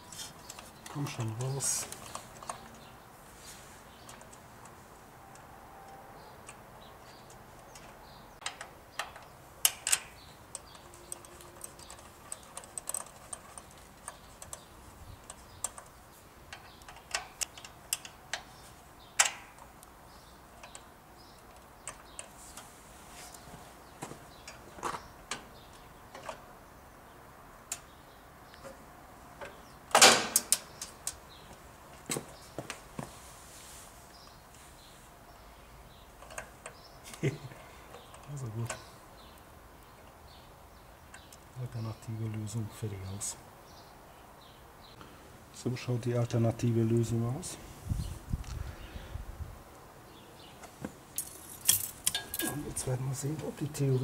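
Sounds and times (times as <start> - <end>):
small metallic clicks and clinks: 7.2 - 15.9, 51.2 - 52.8
rattling clicks: 7.2 - 18.5.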